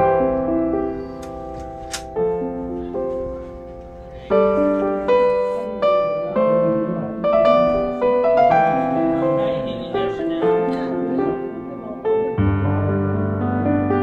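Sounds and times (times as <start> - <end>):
slow piano melody: 0.0 - 14.0.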